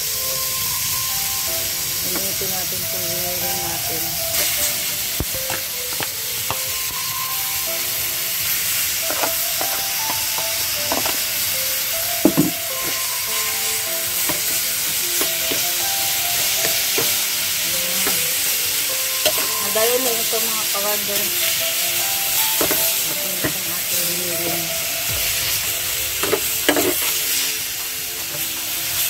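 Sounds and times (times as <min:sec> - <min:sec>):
meat sizzling in a frying pan: 0:00.0 - 0:29.0
spatula knocking on pan: 0:12.2 - 0:13.0, 0:15.2 - 0:15.8.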